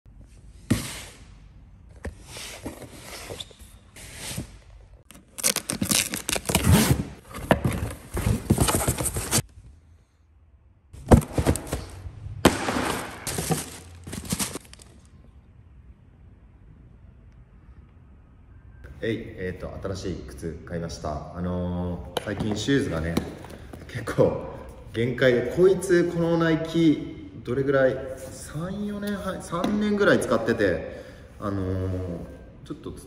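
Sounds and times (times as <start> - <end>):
paper packing rustling: 5.1 - 9.5, 11.0 - 12.0, 12.9 - 15.1
cardboard flaps scraping: 5.4 - 9.5, 11.0 - 12.1, 12.8 - 14.8.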